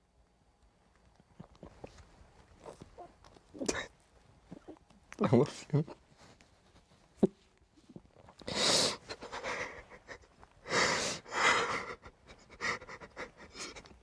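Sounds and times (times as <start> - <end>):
gasping shaky breaths: 8.4 - 14.0.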